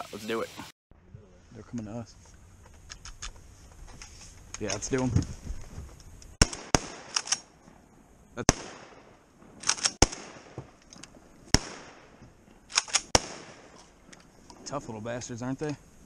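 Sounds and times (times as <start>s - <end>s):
sharp clicks: 6.0s - 7.5s, 9.6s - 10.1s, 12.7s - 13.2s
shotgun shots: 6.4s - 7.5s, 8.4s - 10.8s, 11.5s - 13.8s.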